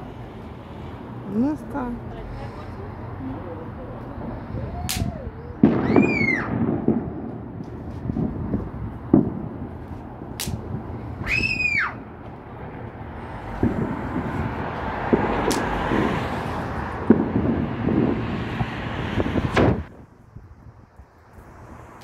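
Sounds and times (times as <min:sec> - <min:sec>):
fireworks rumbling and crackling: 0:03.5 - 0:22.0
whistling firework: 0:04.5 - 0:12.1
sharp firework bangs: 0:04.8 - 0:12.1, 0:13.4 - 0:19.9.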